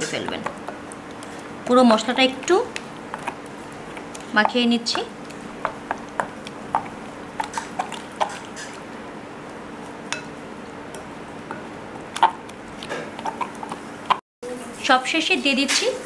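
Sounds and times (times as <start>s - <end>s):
wet squishing of paste: 5.1s - 8.8s.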